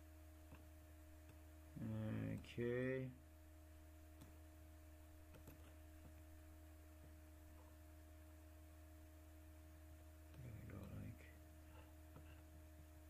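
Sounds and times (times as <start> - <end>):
low electrical hum: 0.0 - 13.0
faint mouse clicks: 4.2 - 4.4, 10.3 - 11.2.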